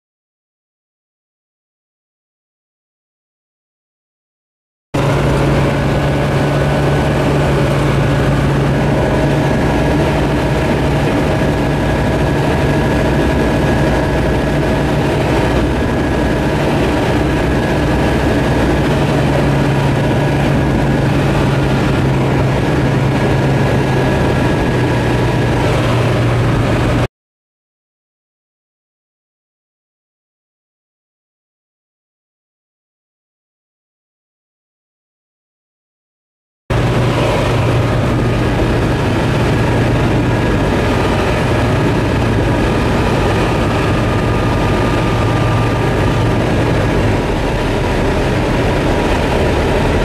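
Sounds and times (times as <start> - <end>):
aircraft engine and propeller droning: 5.0 - 27.1, 36.7 - 50.0.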